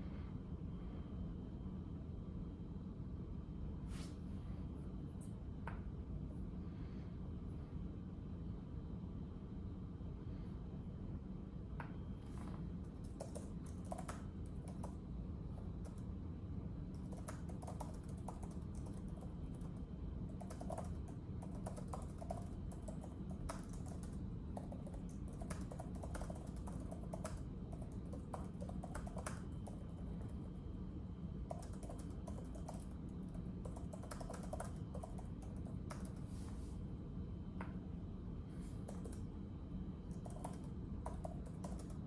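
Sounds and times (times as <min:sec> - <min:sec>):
keyboard typing clicks: 0:12.8 - 0:15.0, 0:16.9 - 0:30.4, 0:31.4 - 0:36.2, 0:38.9 - 0:39.3, 0:40.1 - 0:42.0.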